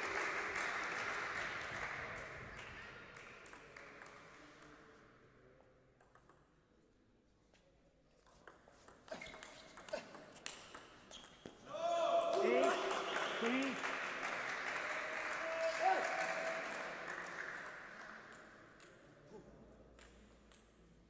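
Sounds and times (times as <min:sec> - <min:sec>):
applause: 0:00.0 - 0:04.8, 0:12.3 - 0:18.5.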